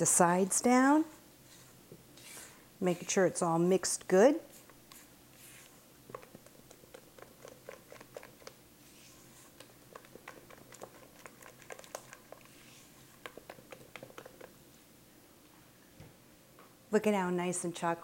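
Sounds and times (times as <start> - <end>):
spatula scraping metal bowl: 1.5 - 3.4.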